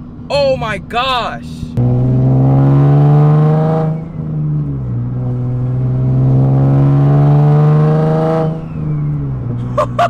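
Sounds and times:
car engine accelerating: 1.7 - 9.7.

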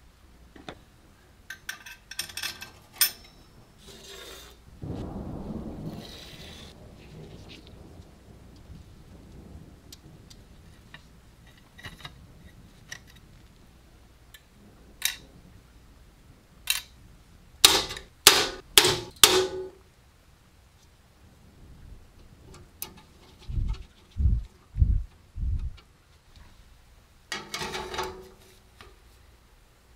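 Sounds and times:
sharp knocks: 17.6 - 19.8.

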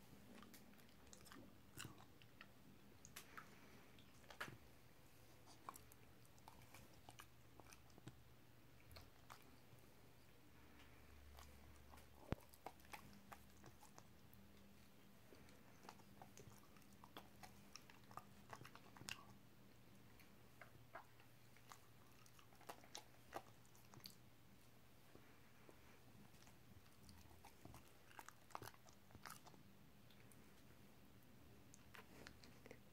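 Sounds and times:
dog chewing wetly: 10.6 - 24.2, 26.2 - 30.3.

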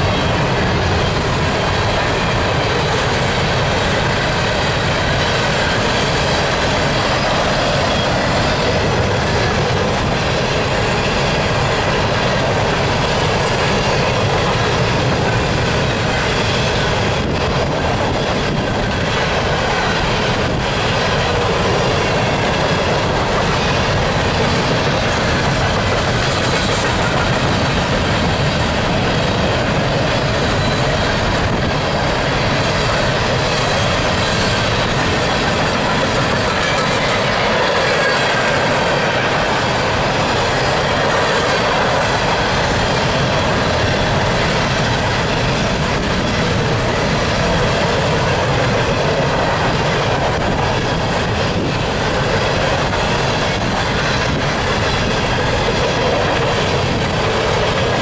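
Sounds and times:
steel wheels rolling on rail: 0.0 - 58.0.

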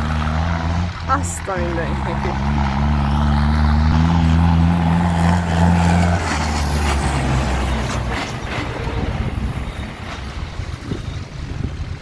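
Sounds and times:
diesel tractor engine running: 0.0 - 12.0
rumble of tractors driving: 0.0 - 12.0.

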